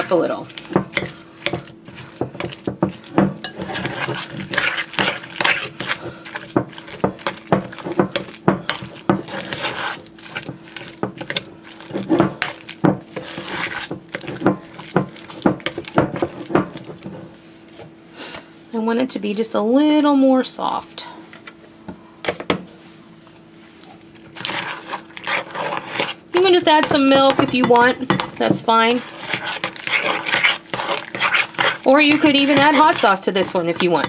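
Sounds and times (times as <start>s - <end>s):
metal spoon scraping a ceramic bowl: 26.8s - 34.0s.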